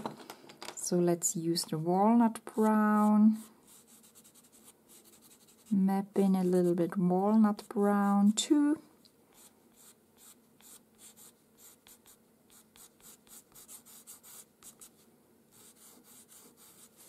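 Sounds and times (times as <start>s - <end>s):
pastel pencil scratching on paper: 2.6s - 5.8s, 9.3s - 17.0s.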